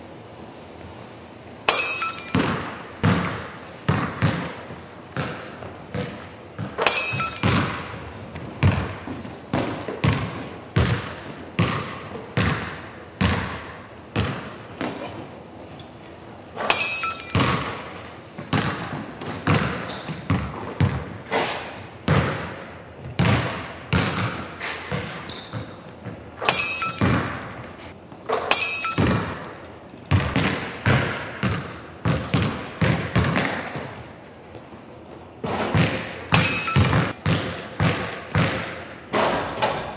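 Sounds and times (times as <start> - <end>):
ball clanging off rim: 1.7 - 4.5, 5.2 - 10.3, 16.2 - 18.0, 24.2 - 31.2, 35.4 - 37.5
basketball bouncing on hardwood: 2.3 - 15.0, 16.7 - 21.2, 22.1 - 27.4, 30.1 - 34.0, 35.4 - 39.4
shoe squeaks: 9.1 - 10.1, 16.1 - 17.5, 19.9 - 20.5, 21.3 - 22.1, 25.2 - 27.9, 28.6 - 30.1, 39.6 - 39.9.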